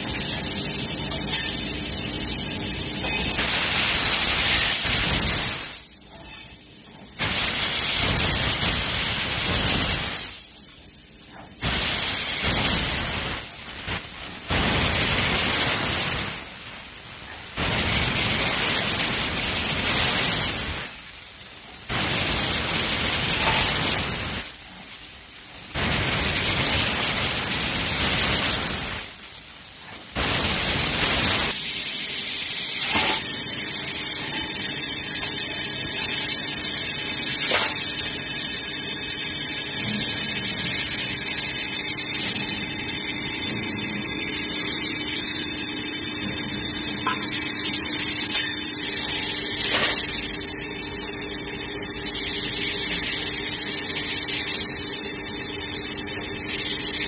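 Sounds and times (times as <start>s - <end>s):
laser cutter gas hiss: 0.0s - 57.0s.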